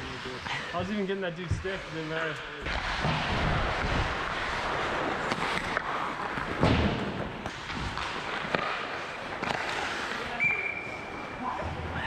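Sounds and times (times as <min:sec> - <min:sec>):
skates scraping ice: 0:00.0 - 0:12.0
hockey sticks and puck knocking: 0:02.7 - 0:10.3
referee whistle: 0:10.4 - 0:11.0.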